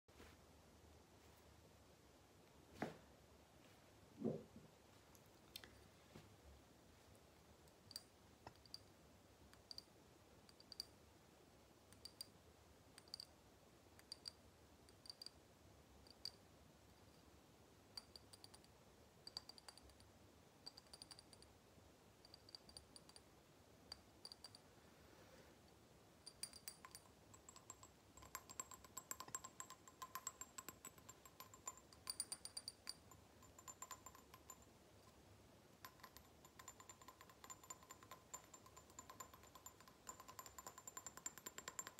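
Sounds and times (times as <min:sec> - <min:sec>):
tapping on glass jar: 0:17.9 - 0:20.0, 0:26.2 - 0:35.2, 0:35.8 - 0:41.9.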